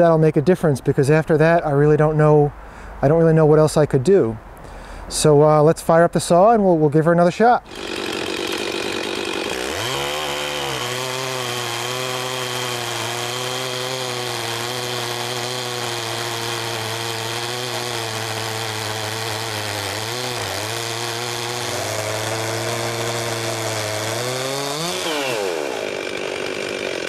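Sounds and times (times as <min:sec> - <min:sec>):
chainsaw cutting through log: 0:07.6 - 0:27.0.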